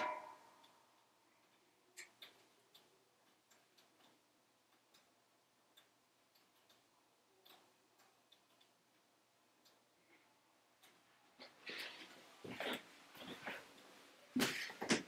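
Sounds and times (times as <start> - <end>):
logs crackling in a stove: 0.0 - 15.0.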